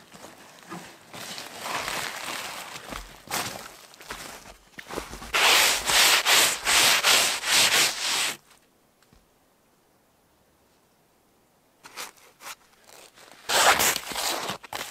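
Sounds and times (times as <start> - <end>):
footsteps crunching in snow: 0.0 - 8.4
snow brushed off bin: 5.3 - 8.4.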